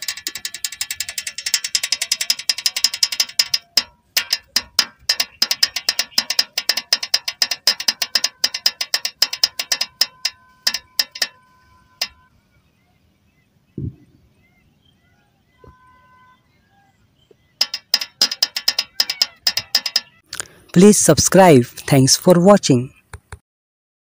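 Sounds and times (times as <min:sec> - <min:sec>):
toy tractor clicking: 0:00.0 - 0:12.3, 0:17.6 - 0:22.2.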